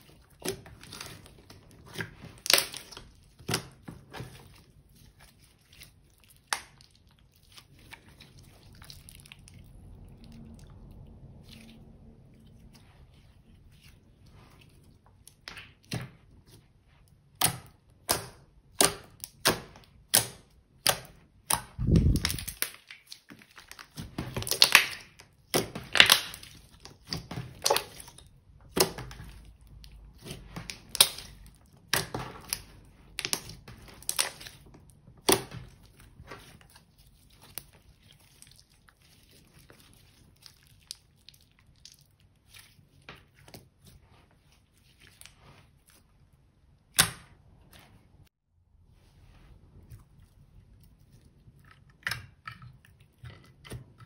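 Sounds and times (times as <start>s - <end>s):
slime popping wetly: 0.3s - 4.4s, 17.4s - 29.5s, 30.1s - 34.6s.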